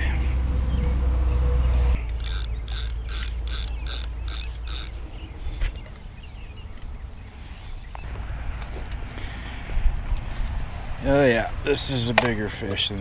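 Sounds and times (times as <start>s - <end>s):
mechanical ratchet clicking: 2.1s - 4.9s.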